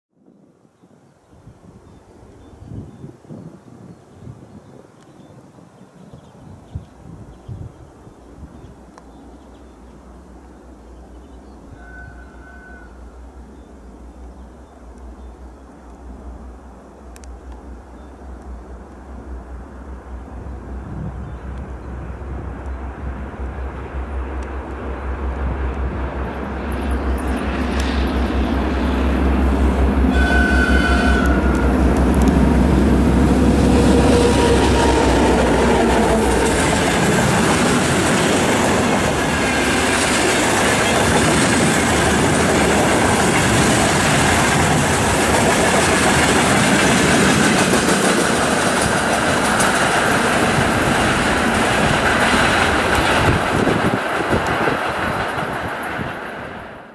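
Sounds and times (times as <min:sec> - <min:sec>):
diesel locomotive passing: 0:07.9 - 0:56.9
train horn toot: 0:11.7 - 0:13.1, 0:30.1 - 0:32.2, 0:33.2 - 0:36.6.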